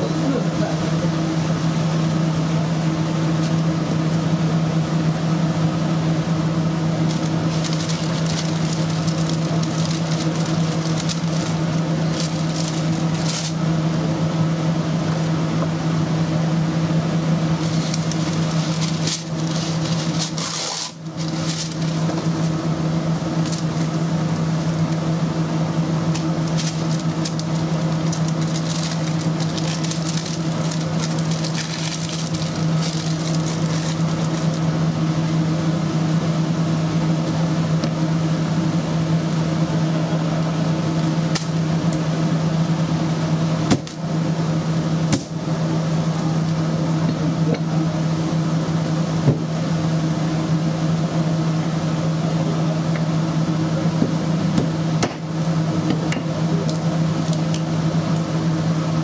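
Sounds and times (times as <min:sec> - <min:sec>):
kitchen equipment hum: 0:00.0 - 0:59.0
paper sheets rustling: 0:07.0 - 0:13.6, 0:17.6 - 0:22.6, 0:23.4 - 0:24.0, 0:26.2 - 0:34.6.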